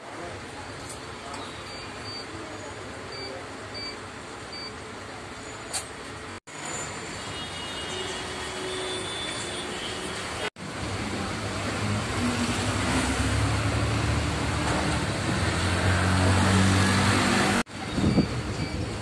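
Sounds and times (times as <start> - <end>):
road noise: 0.0 - 19.0.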